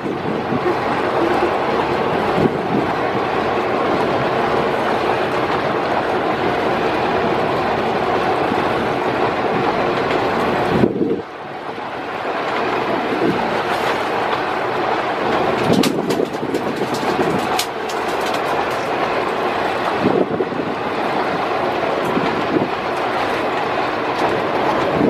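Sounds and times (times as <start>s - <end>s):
boat engine running: 0.0s - 25.0s
water rushing along hull: 0.0s - 25.0s
rhythmic clatter: 15.4s - 19.4s.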